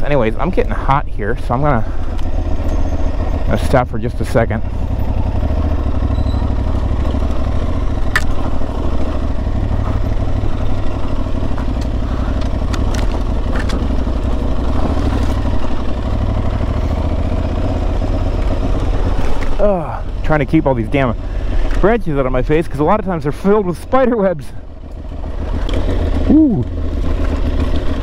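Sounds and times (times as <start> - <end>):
motorcycle engine running: 0.0 - 28.0
sharp clicks: 8.0 - 8.4, 11.6 - 13.9.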